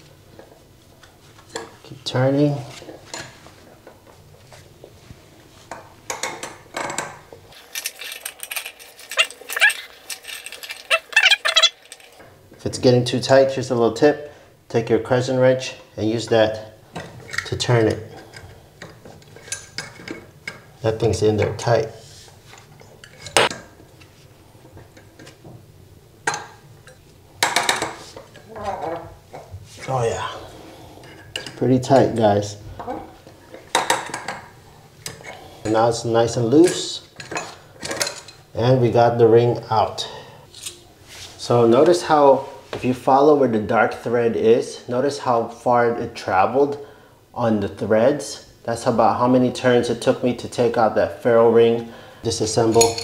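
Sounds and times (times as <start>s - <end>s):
metal squeaking under load: 9.0s - 11.9s.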